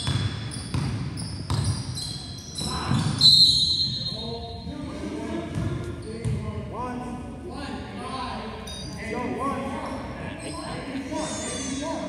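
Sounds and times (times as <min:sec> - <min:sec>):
basketball bouncing: 0:00.0 - 0:01.9
sneakers squeaking: 0:00.0 - 0:04.8, 0:05.5 - 0:06.5, 0:09.8 - 0:12.0.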